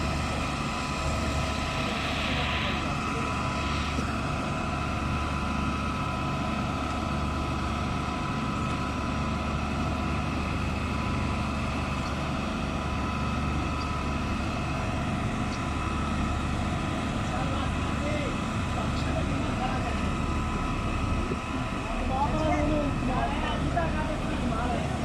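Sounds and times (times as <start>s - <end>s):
constant high tone: 0.0s - 6.4s
diesel engine and hydraulics running: 0.0s - 25.0s.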